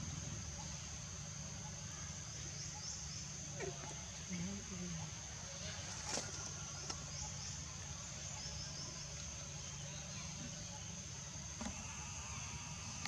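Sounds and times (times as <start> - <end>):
low background rumble: 0.0 - 5.5
insects droning: 0.0 - 13.0.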